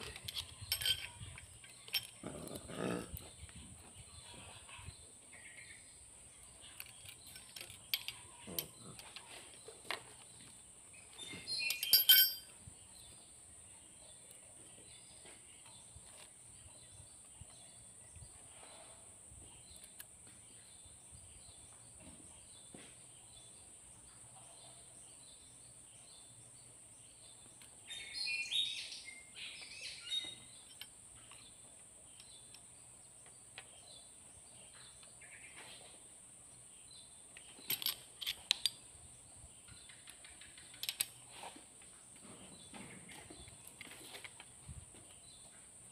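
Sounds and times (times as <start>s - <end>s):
wrench clicking on metal: 0.0s - 2.2s
ringing metal clink: 0.2s - 2.2s, 11.5s - 12.6s.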